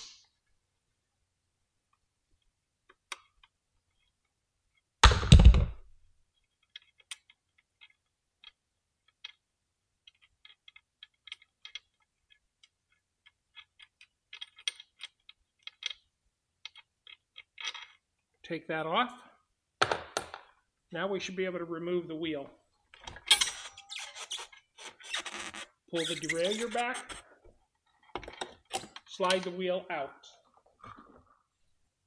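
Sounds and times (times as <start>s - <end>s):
small metallic clicks: 10.0s - 18.0s.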